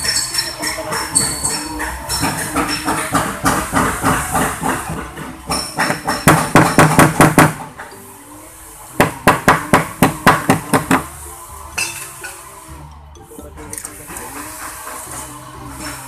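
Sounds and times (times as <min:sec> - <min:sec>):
hammer blows: 0:00.0 - 0:07.8.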